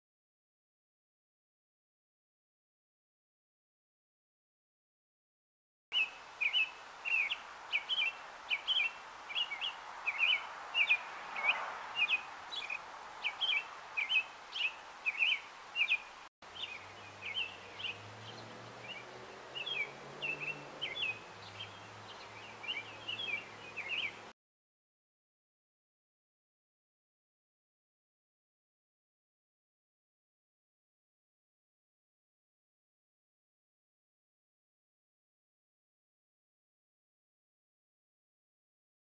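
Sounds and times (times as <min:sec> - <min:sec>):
robin singing: 0:05.9 - 0:24.3.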